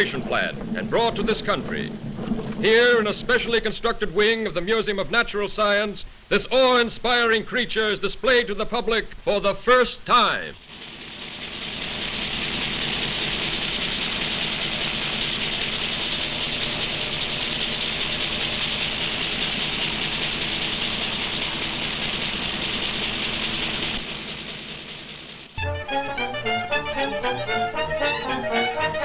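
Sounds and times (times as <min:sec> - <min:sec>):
refrigeration plant hum and hiss: 0:00.0 - 0:27.8
orchestral music: 0:25.6 - 0:29.0.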